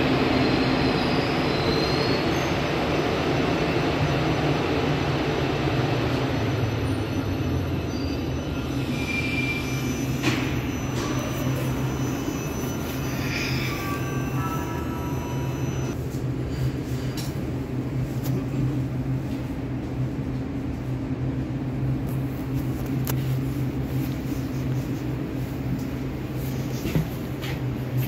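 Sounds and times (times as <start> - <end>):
train low hum: 0.0 - 28.0
high whine: 6.3 - 16.0.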